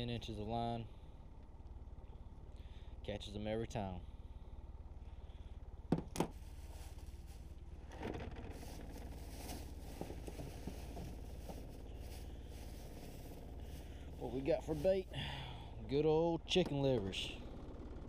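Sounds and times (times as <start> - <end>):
fishing gear scraping and rustling: 6.4 - 15.1.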